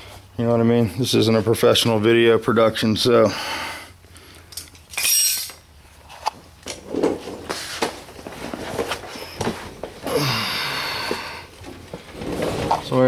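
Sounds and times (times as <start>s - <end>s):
rustling and scuffs: 6.0s - 10.1s.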